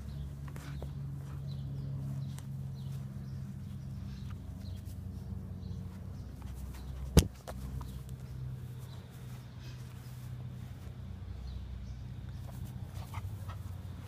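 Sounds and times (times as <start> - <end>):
faint clicks and rustles: 0.0 - 11.1
steady low hum: 0.0 - 14.0.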